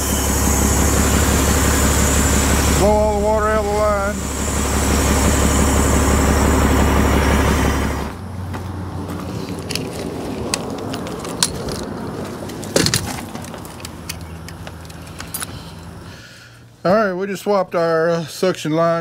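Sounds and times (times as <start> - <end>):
pump rushing hiss: 0.0 - 8.2
engine idling: 0.0 - 9.7.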